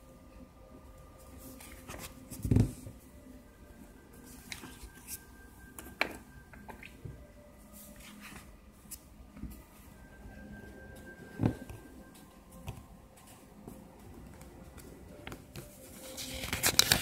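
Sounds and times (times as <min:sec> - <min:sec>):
paper pages rustling: 0:01.2 - 0:02.9, 0:04.3 - 0:05.2, 0:07.8 - 0:09.0, 0:15.2 - 0:17.0.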